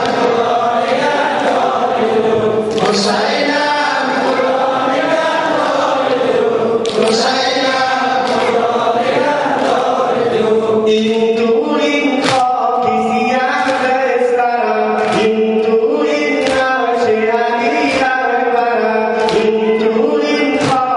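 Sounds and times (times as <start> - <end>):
mourners chanting a lament: 0.0 - 20.9
sharp smacks: 12.2 - 12.6, 16.4 - 16.8.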